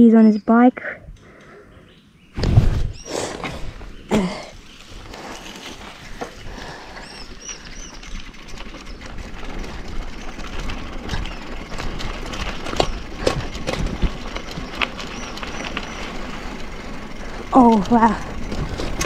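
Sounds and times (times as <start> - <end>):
bicycle frame rattling: 2.9 - 19.0
tyres crunching on gravel: 3.2 - 19.0.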